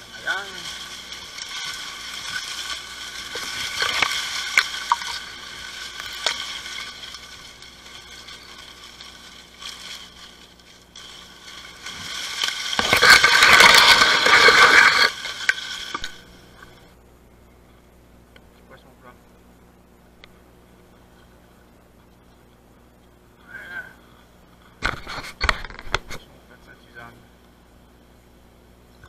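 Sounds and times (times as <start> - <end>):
dry grass rustling and snapping: 0.0 - 17.0, 24.5 - 26.2.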